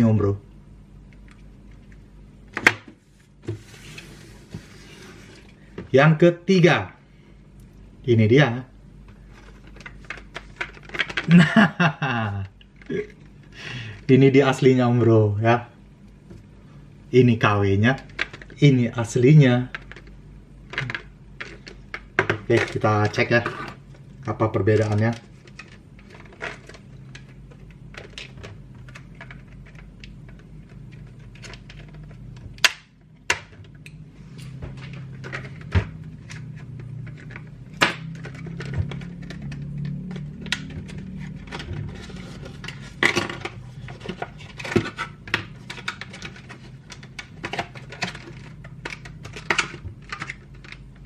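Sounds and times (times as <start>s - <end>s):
low steady hum: 0.0s - 51.0s
plastic snap: 32.6s - 33.6s.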